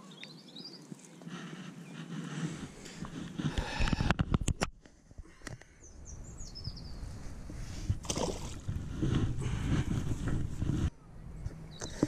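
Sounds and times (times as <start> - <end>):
small bird chirping: 0.0 - 1.2, 5.8 - 7.1.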